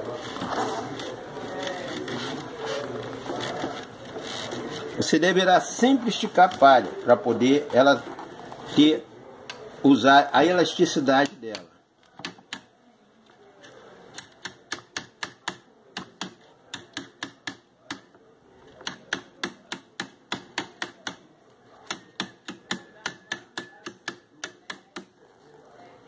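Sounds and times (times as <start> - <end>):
metal tool clicking on cane: 11.2 - 12.7, 14.1 - 18.1, 21.8 - 25.1.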